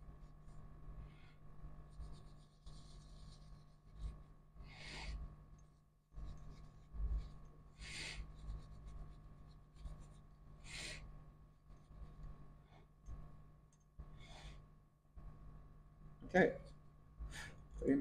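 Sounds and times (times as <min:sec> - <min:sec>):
low electrical hum: 0:00.0 - 0:18.0
cloth rubbing a surface: 0:01.8 - 0:05.2.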